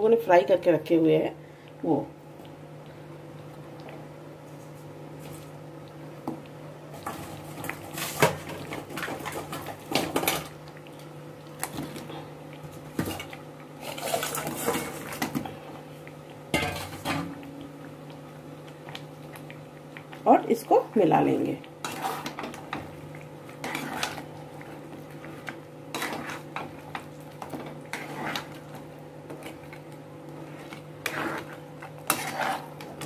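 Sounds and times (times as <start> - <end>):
steady low hum: 0.0 - 33.0
metal spoon scraping pan: 21.8 - 22.5, 23.6 - 24.2, 25.9 - 26.5, 31.0 - 33.0.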